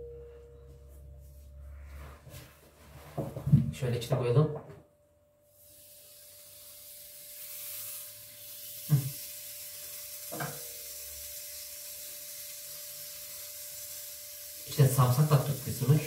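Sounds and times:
food sizzling on a contact grill: 5.5s - 16.0s.

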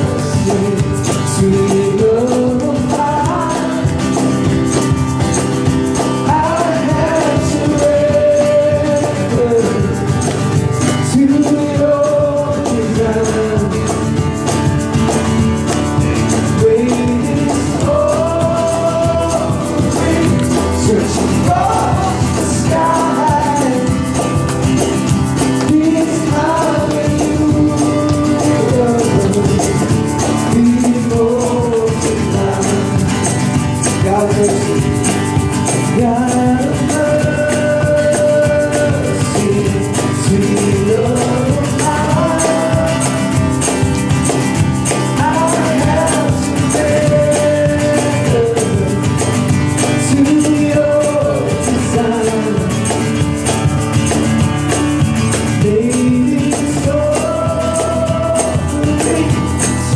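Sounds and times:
person singing: 0.0s - 4.5s, 6.0s - 10.3s, 11.0s - 14.2s, 16.2s - 24.6s, 25.5s - 43.8s, 44.9s - 53.2s, 55.4s - 59.9s
acoustic guitar strummed: 0.0s - 59.9s
cajon beat: 0.0s - 59.9s.

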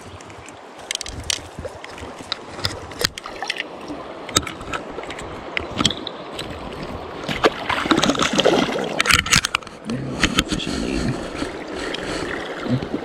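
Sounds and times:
stream flowing: 0.0s - 13.0s
water sloshing in landing net: 1.5s - 9.3s.

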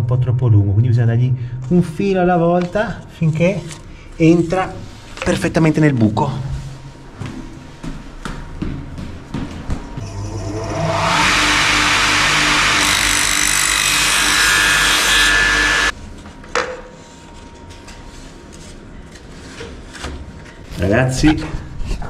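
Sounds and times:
electric mitre saw cutting wood: 10.0s - 15.9s.

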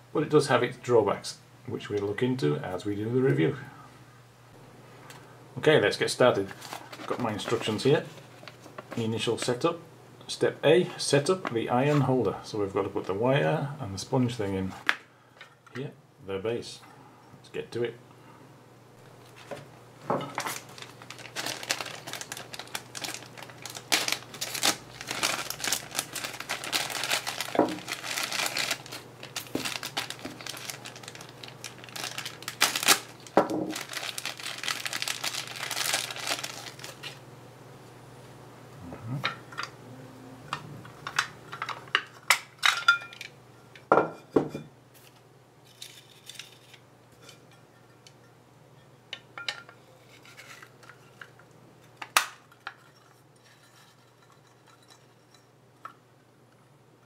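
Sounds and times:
plastic bags crinkling: 6.4s - 9.0s, 20.3s - 37.2s.

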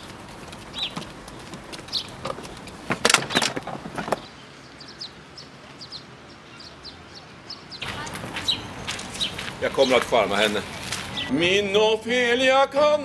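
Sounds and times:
small birds chirping: 0.0s - 11.4s
loud clattering knocks: 0.8s - 4.3s.

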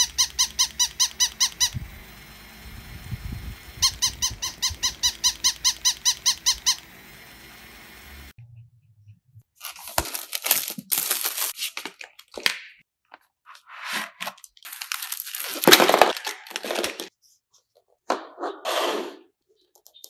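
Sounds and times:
packaging rustling: 9.6s - 12.5s, 14.0s - 17.1s
scissors cutting plastic wrap: 9.6s - 12.5s, 14.2s - 17.1s
plastic wrap tearing and crinkling: 9.6s - 12.6s, 14.1s - 17.1s.

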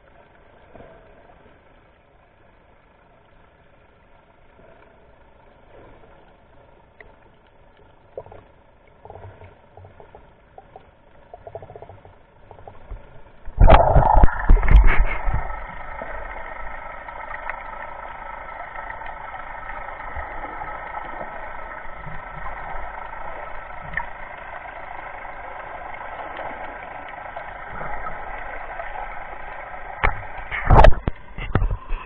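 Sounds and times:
boat engine droning underwater: 0.0s - 32.0s
knocks and splashes on camera: 13.6s - 15.6s, 30.0s - 32.0s.

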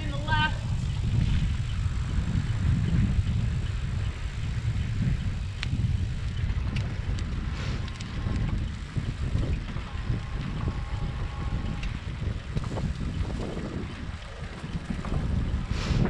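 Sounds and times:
wind buffeting microphone: 0.0s - 16.0s
faint ticks: 5.1s - 10.8s, 11.4s - 13.1s.

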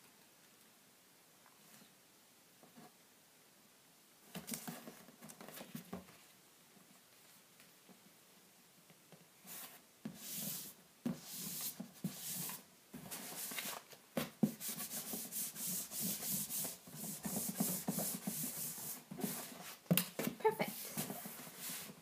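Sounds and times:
palm brushing on paper: 9.4s - 13.8s, 14.4s - 19.8s, 20.6s - 22.0s.

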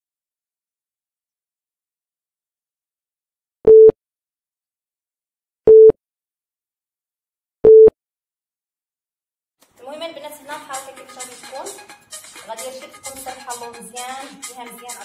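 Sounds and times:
short electronic beeps: 3.7s - 4.0s, 5.7s - 6.0s, 7.6s - 7.9s.

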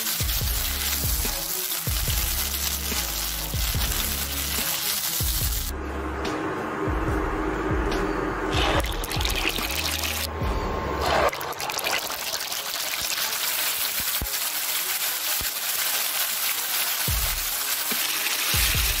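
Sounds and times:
oil sizzling in a wok: 0.0s - 5.7s, 8.6s - 10.3s, 11.3s - 19.0s
music with deep bass: 0.1s - 11.3s, 17.1s - 17.8s, 18.5s - 19.0s.

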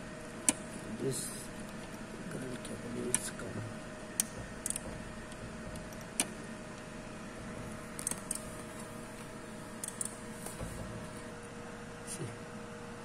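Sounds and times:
steady electrical hum: 0.0s - 13.0s
clicks on screw terminals: 4.2s - 6.3s, 8.0s - 8.4s, 9.8s - 10.2s.

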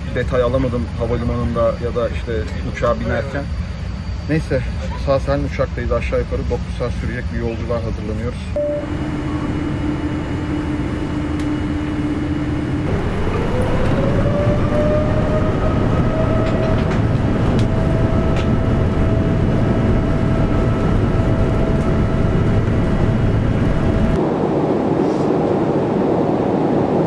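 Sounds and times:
jet engines spooling up: 8.4s - 27.0s.

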